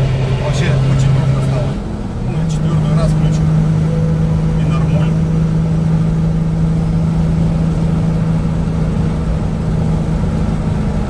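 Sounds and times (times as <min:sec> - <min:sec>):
engine drone inside car: 0:00.0 - 0:11.0
tyre and road noise: 0:00.0 - 0:11.0
man talking: 0:00.4 - 0:03.6, 0:04.5 - 0:05.2.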